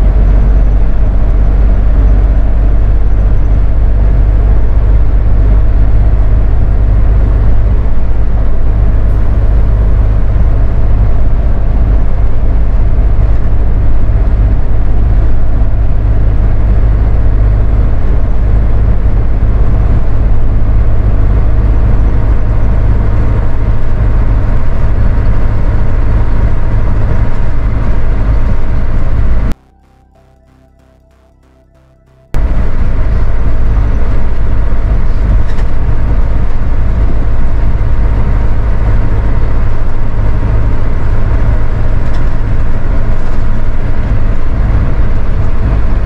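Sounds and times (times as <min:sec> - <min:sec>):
engine and road drone: 0:00.0 - 0:46.0
faint music: 0:29.5 - 0:33.9.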